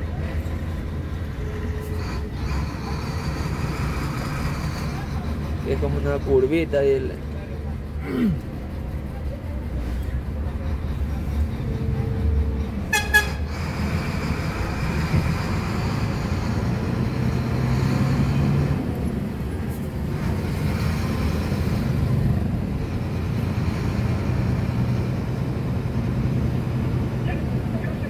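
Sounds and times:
diesel truck engine droning: 0.0 - 28.0
horn toot: 12.9 - 13.4.

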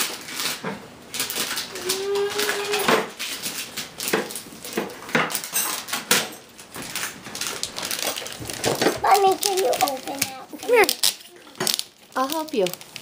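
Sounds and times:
wrapping paper tearing: 0.0 - 5.9, 6.6 - 13.0
child's short vocal sound: 1.7 - 2.9.

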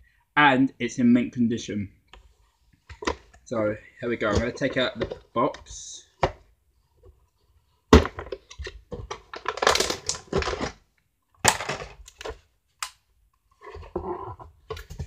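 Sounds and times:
cardboard rustling and scraping: 4.1 - 10.8, 13.5 - 15.0.

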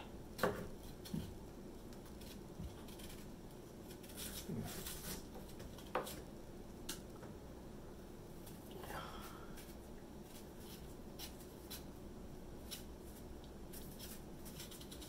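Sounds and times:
knife scraping and slicing fruit: 0.4 - 6.3, 9.5 - 12.0, 12.6 - 15.0.

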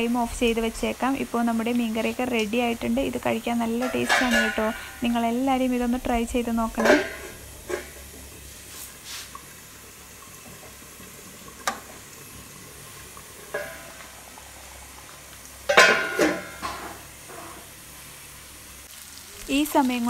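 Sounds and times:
oil sizzling in a pan: 0.0 - 20.0.

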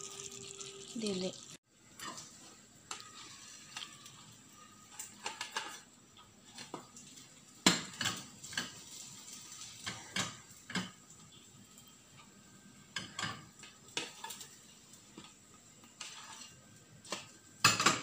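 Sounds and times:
spatula scraping metal wok: 15.8 - 16.6.

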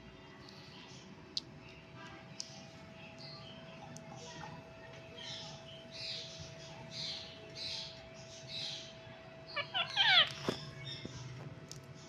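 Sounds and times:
parrot hoarse chattering: 9.5 - 10.3
parrot sharp squawks: 9.5 - 10.6.

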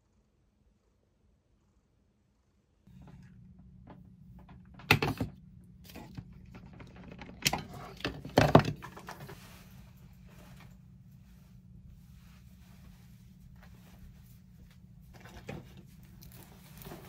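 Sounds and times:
low steady hum: 0.0 - 17.0
sharp knocks and clatters: 2.9 - 9.4.

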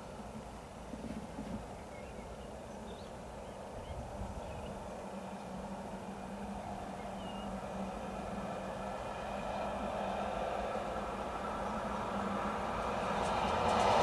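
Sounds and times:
small birds chirping: 1.7 - 5.5, 6.6 - 7.6.

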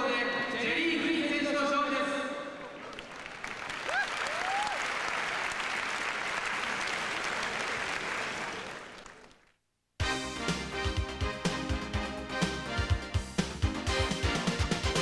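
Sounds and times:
arena crowd applauding: 2.6 - 9.6
music with a beat: 10.0 - 15.0.

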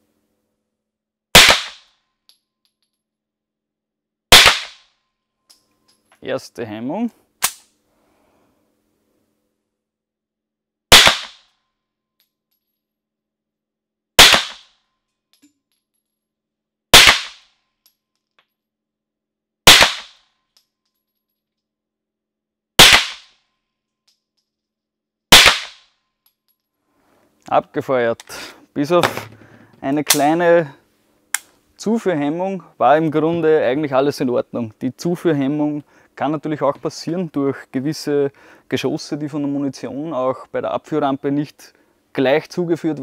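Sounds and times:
pistol shots: 1.4 - 1.9, 4.3 - 4.8, 10.9 - 11.4, 14.2 - 14.7, 17.0 - 17.4, 19.7 - 20.2, 22.8 - 23.3, 25.3 - 25.8
sharp metallic click: 7.4 - 7.7.

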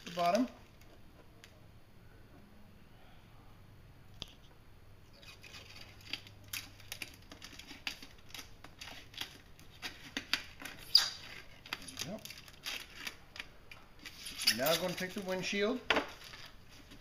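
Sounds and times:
plastic film crackling: 0.0 - 0.9, 5.2 - 17.0.

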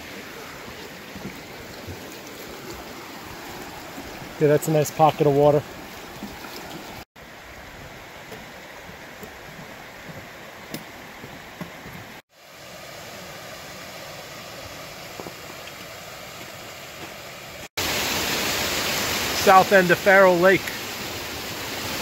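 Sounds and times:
stream flowing: 0.0 - 22.0
boots on wooden planks: 8.2 - 12.2, 15.1 - 17.3.

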